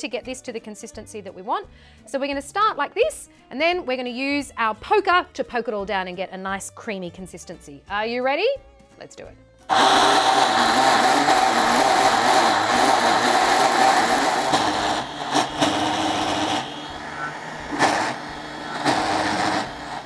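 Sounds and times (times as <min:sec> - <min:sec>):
blender running at high speed: 0:09.7 - 0:20.0.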